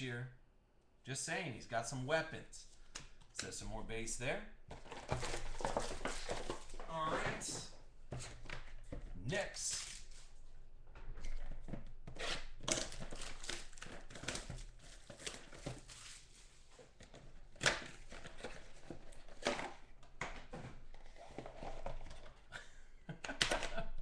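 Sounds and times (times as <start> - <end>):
wrapper crinkling and tearing: 4.8 - 6.9, 12.2 - 16.5.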